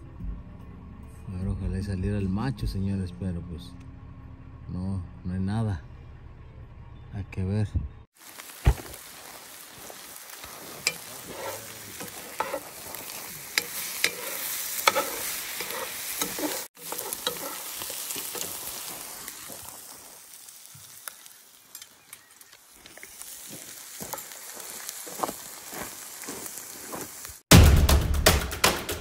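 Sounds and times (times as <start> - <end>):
food sizzling in skillet: 8.1 - 27.4
metal spoon scraping pan: 10.6 - 18.6.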